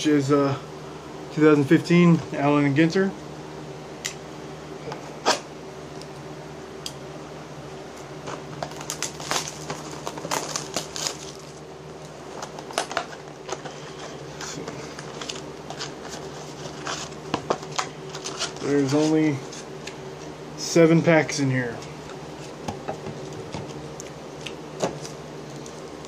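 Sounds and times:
plastic wrap crackling: 0:08.6 - 0:11.6.

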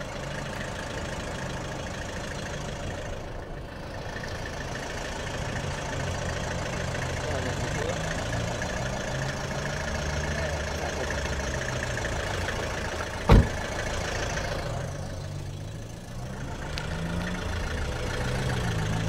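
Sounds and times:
car engine idling: 0:00.0 - 0:19.0
car door slamming: 0:13.2 - 0:13.8.

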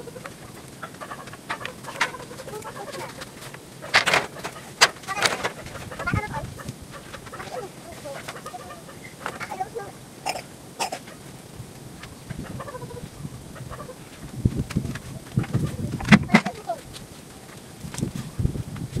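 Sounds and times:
chickens clucking: 0:00.0 - 0:17.0
bamboo poles knocking and clattering: 0:00.1 - 0:06.2, 0:14.4 - 0:18.1.

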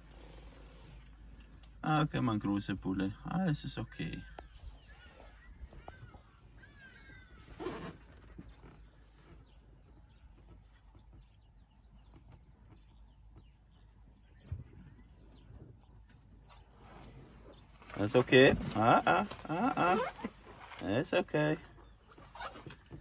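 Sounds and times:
faint bird chirps: 0:00.0 - 0:23.0.

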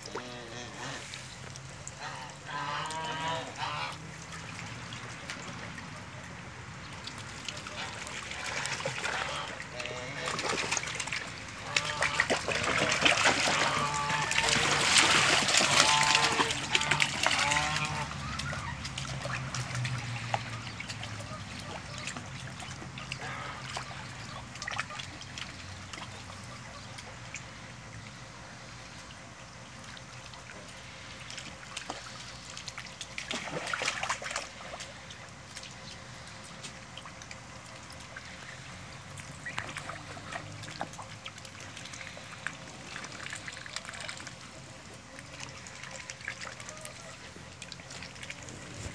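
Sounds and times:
ducks splashing in water: 0:00.0 - 0:48.9
water trickling: 0:00.0 - 0:48.9
duck calls: 0:02.0 - 0:04.0, 0:11.6 - 0:19.4.

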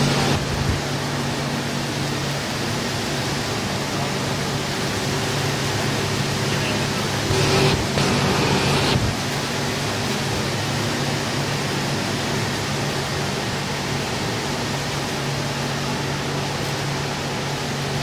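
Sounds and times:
low hum: 0:07.2 - 0:09.2.

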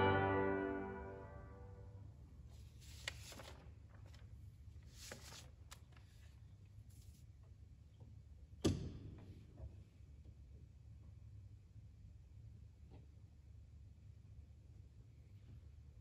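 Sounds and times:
low steady hum: 0:00.0 - 0:02.0
music paper rustling: 0:02.5 - 0:07.3.

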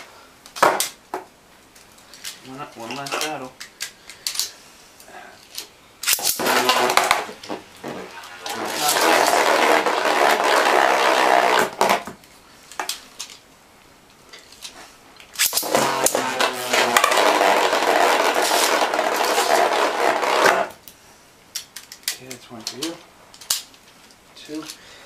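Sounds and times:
spinning tops whirring and rattling: 0:08.7 - 0:11.8, 0:15.4 - 0:20.6.

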